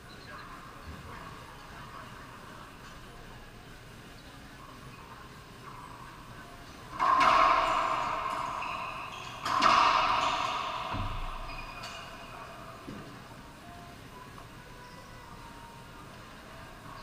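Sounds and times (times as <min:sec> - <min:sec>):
racquetball hits ringing: 0:07.0 - 0:12.5.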